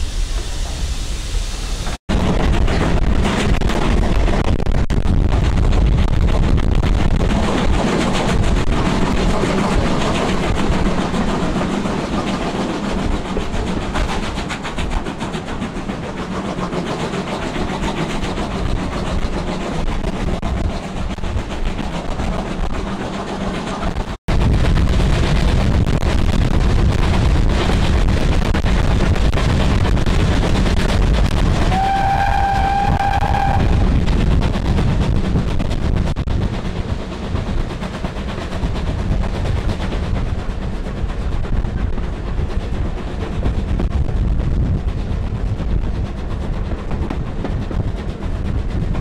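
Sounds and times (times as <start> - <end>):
train wheels rumbling on track: 0.0 - 49.0
steam locomotive whistle: 31.6 - 33.9.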